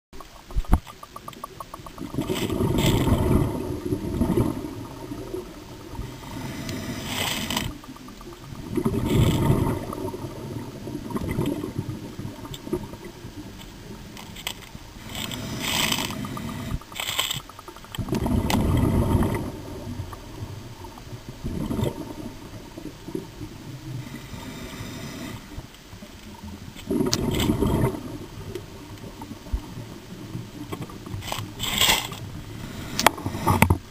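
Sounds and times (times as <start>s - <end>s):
exhaled bubbles underwater: 0.2s - 14.0s, 15.4s - 24.2s, 26.3s - 31.6s
hissing regulator breaths: 6.0s - 8.0s, 15.0s - 17.0s.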